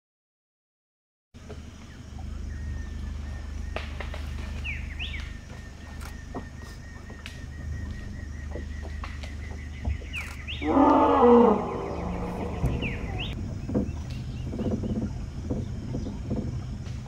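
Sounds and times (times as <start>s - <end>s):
steady low hum: 1.4s - 17.0s
elephant roaring call: 10.2s - 13.4s.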